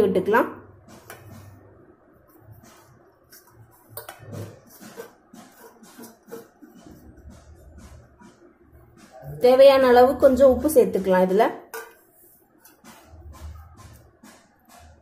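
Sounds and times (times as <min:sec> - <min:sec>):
utensil tapping metal bowl: 0:00.9 - 0:01.6, 0:02.3 - 0:08.2, 0:10.6 - 0:14.9.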